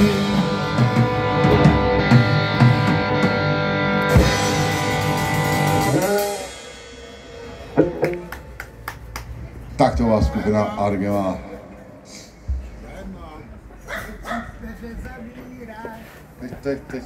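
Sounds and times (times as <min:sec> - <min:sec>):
live rock band playing: 0:00.0 - 0:09.4.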